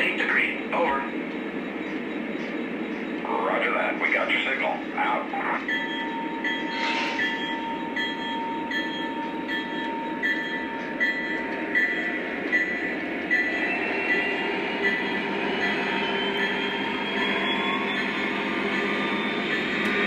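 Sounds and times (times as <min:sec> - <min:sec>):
train wheels rolling on track: 0:00.0 - 0:20.0
locomotive bell ringing: 0:05.4 - 0:20.0.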